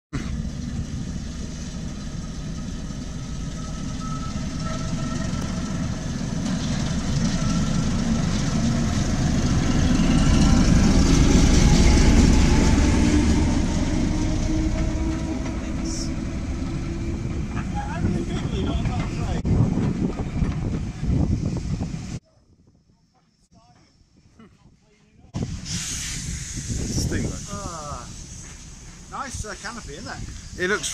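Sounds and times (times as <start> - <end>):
diesel locomotive engine rumble: 0.1 - 22.2, 25.3 - 30.9.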